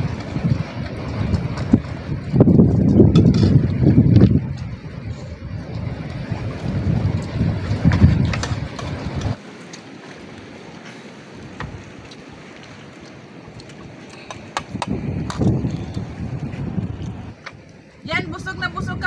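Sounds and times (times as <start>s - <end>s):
wind buffeting microphone: 0.0s - 9.4s, 10.3s - 19.0s.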